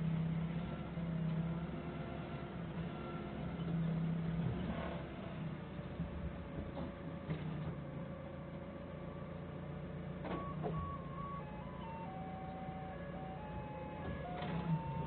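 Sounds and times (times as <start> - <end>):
forklift engine running: 0.0 - 15.0
electronic beeping tune: 10.4 - 15.0.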